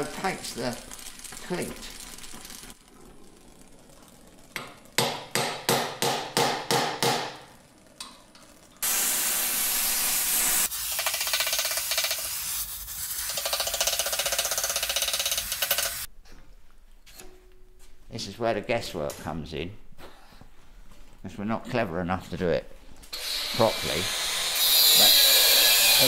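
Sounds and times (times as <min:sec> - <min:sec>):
gas welding torch hissing: 0:08.8 - 0:16.1, 0:23.1 - 0:26.0.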